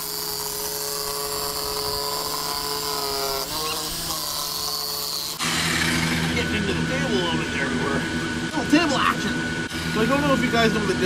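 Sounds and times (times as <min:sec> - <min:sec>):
power saw cutting plastic sheet: 0:00.0 - 0:07.5.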